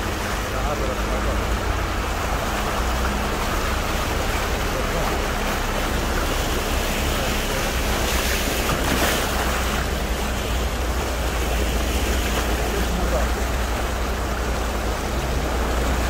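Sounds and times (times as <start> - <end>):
floodwater rushing through street: 0.0 - 16.0.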